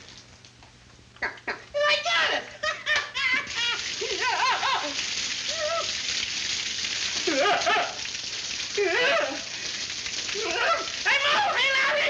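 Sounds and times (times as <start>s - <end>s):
water spraying from pipes: 3.2s - 12.0s
man yelping: 10.4s - 12.0s.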